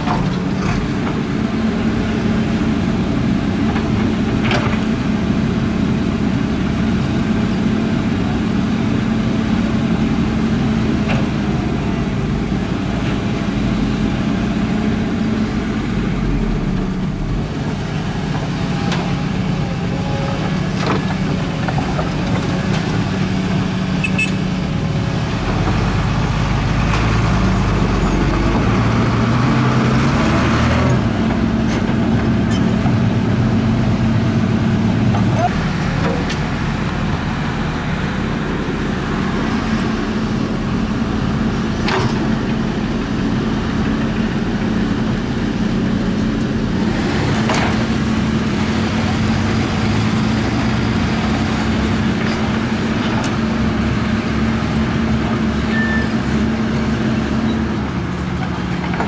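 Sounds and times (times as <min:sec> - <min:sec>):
dump truck diesel engine: 0:00.0 - 0:59.0
excavator diesel engine: 0:00.0 - 0:59.0.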